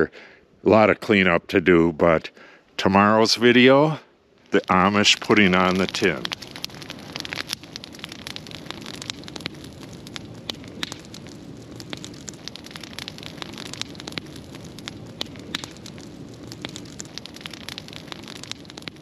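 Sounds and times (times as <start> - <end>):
burning wood crackling: 1.6 - 19.0
rush of flames: 4.5 - 19.0.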